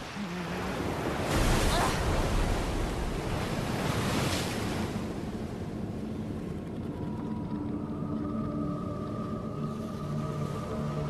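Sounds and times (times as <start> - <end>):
ocean waves: 0.0 - 11.0
wind: 0.0 - 11.0
low sustained music tones: 4.6 - 11.0.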